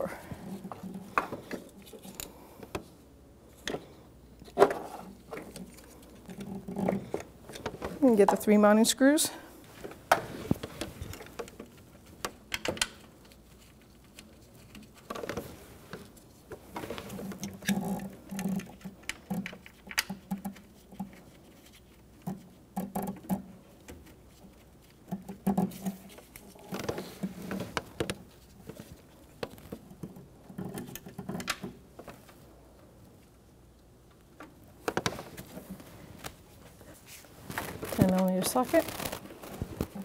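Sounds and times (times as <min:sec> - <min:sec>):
metal parts clicking and tapping: 0:11.1 - 0:15.2, 0:17.3 - 0:21.2.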